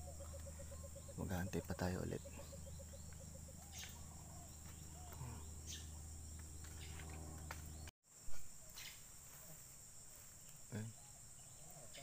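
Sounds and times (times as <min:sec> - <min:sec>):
low hum: 0:00.0 - 0:07.9
faint chirps and ticks: 0:00.0 - 0:12.0
insects droning: 0:00.0 - 0:12.0.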